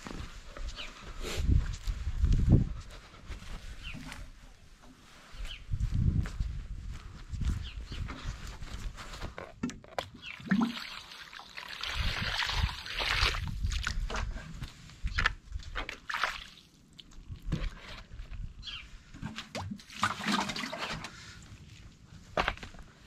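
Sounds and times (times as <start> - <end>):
water pouring into bird bath: 10.1 - 13.6.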